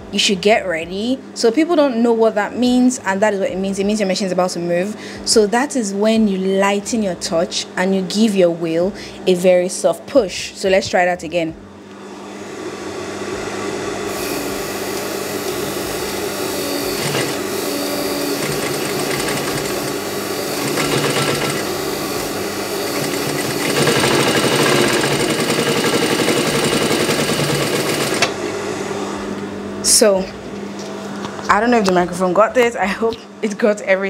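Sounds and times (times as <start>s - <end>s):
sewing machine motor hum: 12.0s - 29.4s
sewing machine stitching: 16.7s - 28.3s.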